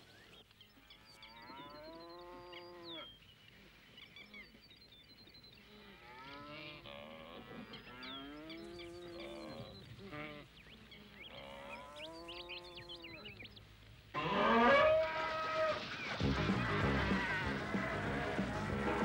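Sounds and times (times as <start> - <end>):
buffalo lowing: 14.2 - 19.0.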